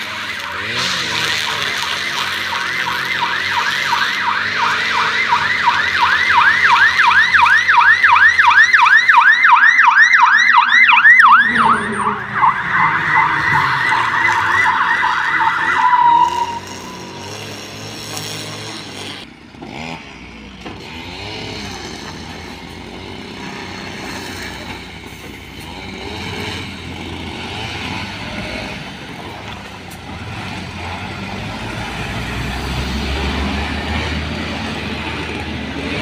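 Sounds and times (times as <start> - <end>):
fire truck siren yelping: 0.0 - 18.1
truck engine: 0.0 - 36.0.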